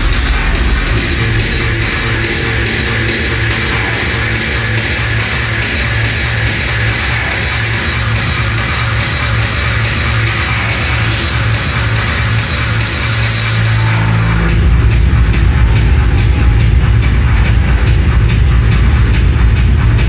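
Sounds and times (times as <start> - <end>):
electronic dance music: 0.0 - 20.0
fast kick drum: 14.5 - 20.0.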